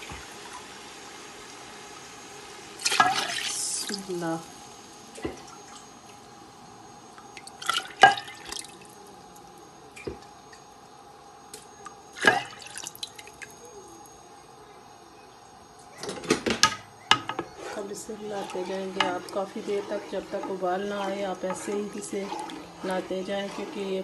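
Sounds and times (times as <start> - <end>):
steady hum: 0.0 - 24.0
liquid splashing in a pot: 2.8 - 4.1, 7.3 - 9.0, 11.5 - 13.6, 16.4 - 24.0.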